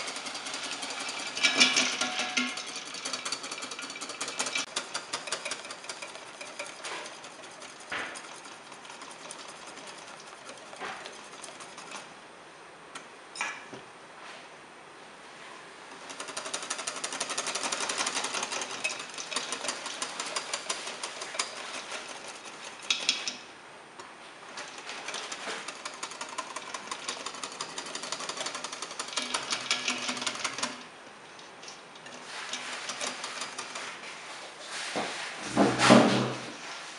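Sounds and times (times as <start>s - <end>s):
whisk rattling against bowl: 0.0s - 12.1s, 16.0s - 23.5s, 24.5s - 30.9s, 31.6s - 34.1s.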